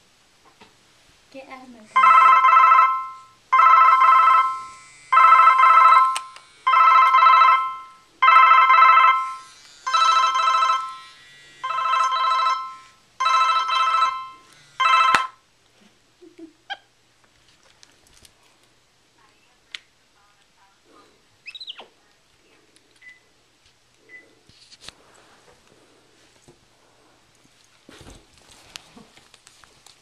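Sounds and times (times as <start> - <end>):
phone ringing with electronic trill: 2.0 - 15.4.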